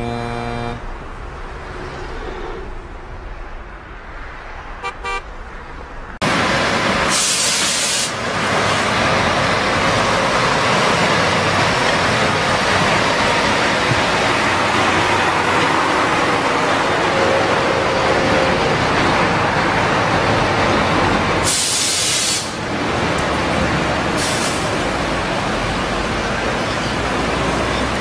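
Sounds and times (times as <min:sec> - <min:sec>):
truck tyres rumbling: 0:00.0 - 0:28.0
air brake hiss: 0:07.1 - 0:08.2, 0:21.4 - 0:22.6, 0:24.2 - 0:24.7.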